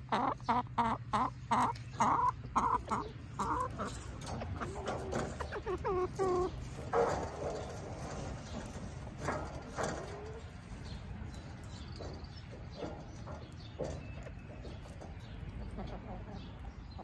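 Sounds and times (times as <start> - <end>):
hens clucking: 0.0 - 17.0.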